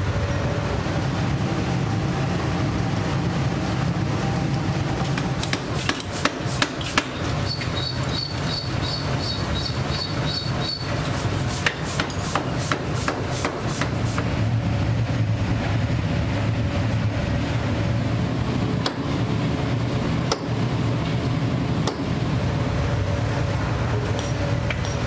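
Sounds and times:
metallic hammer knocks: 0:21.8 - 0:22.2.

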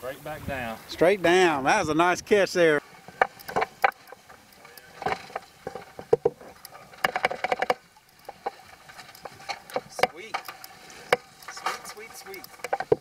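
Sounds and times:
water slapping boat hull: 0:01.2 - 0:13.0
knocks and clicks aboard: 0:02.9 - 0:13.0.

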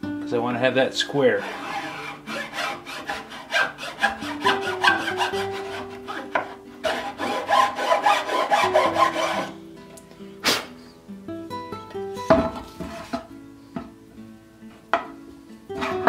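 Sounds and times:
guitar music: 0:00.0 - 0:16.0
hand file rasping on wood: 0:01.3 - 0:09.5, 0:12.9 - 0:13.2.

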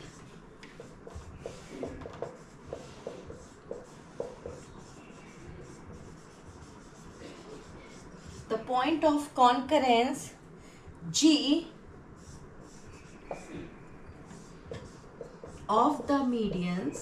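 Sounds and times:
marker writing on whiteboard: 0:00.0 - 0:08.7, 0:12.2 - 0:17.0.

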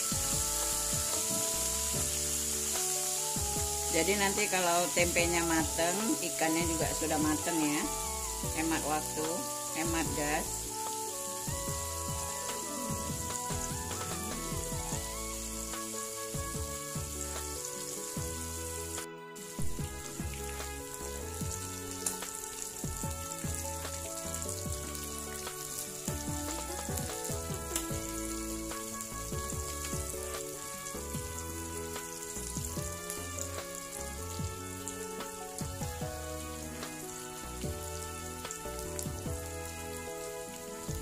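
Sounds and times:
food sizzling in hot oil: 0:00.0 - 0:41.0
soft background music: 0:00.0 - 0:41.0.

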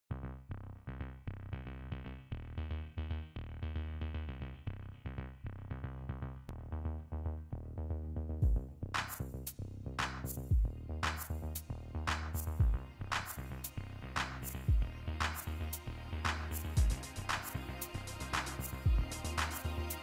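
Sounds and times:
electronic music: 0:06.5 - 0:20.0.

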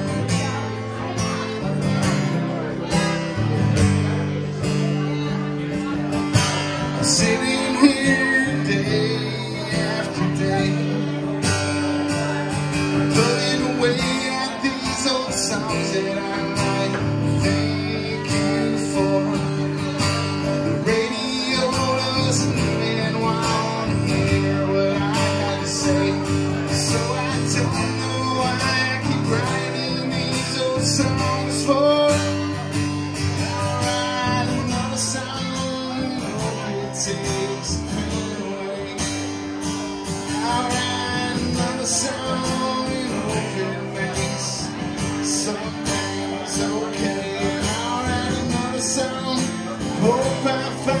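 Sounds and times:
acoustic guitar strumming: 0:00.0 - 0:51.0
man singing: 0:00.0 - 0:51.0.

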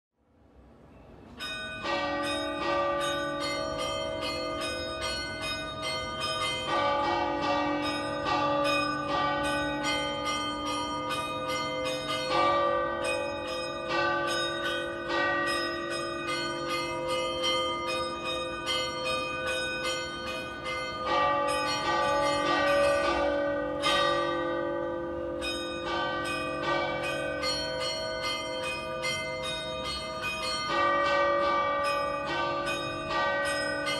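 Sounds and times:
tower bells ringing: 0:01.3 - 0:33.9.

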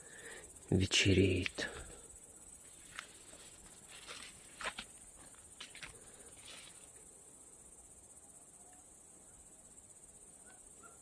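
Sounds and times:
crickets chirping: 0:00.0 - 0:11.0
soft rustles: 0:02.6 - 0:07.0.

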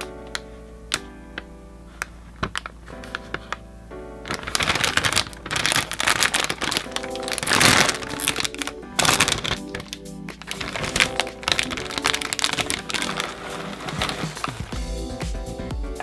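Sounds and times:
plastic packaging crackling: 0:00.0 - 0:03.6, 0:04.2 - 0:14.8
background music: 0:00.0 - 0:16.0.

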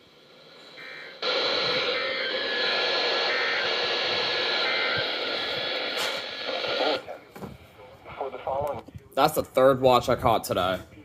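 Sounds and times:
faint steady tones: 0:00.0 - 0:08.8
radio static hiss: 0:00.0 - 0:09.0.

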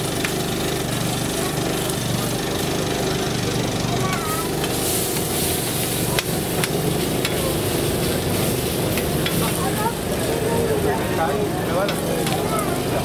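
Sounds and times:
chicken sizzling on a griddle: 0:00.0 - 0:13.0
low motor hum: 0:00.0 - 0:13.0
metal tongs scraping and clicking: 0:06.2 - 0:07.4.

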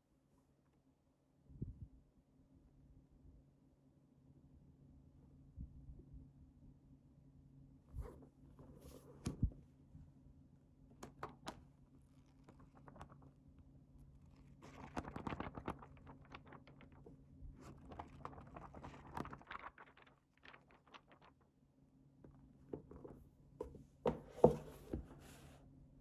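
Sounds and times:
paper pages rustling and turning: 0:07.9 - 0:09.6, 0:11.0 - 0:21.5
notebook thump: 0:22.8 - 0:25.4.

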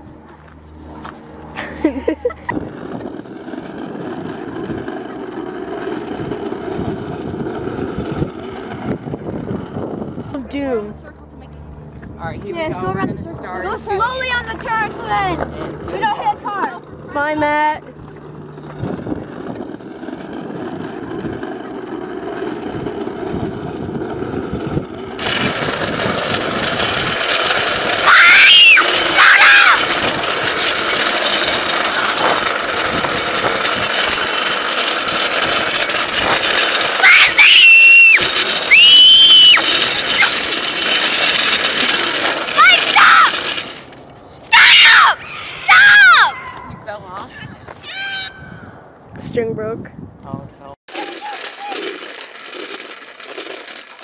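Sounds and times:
plastic wheels rolling over asphalt: 0:00.7 - 0:44.2, 0:50.9 - 0:54.0
wind rushing: 0:06.1 - 0:10.5, 0:45.1 - 0:50.7.

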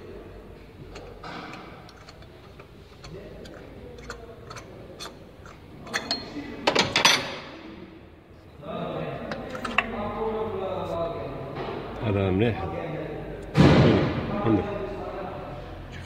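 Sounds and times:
clicks and knocks of handling parts: 0:00.8 - 0:07.5, 0:09.2 - 0:10.0.

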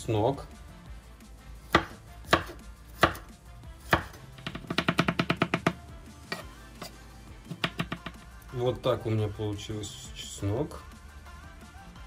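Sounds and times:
knife chopping on a cutting board: 0:01.6 - 0:08.2.

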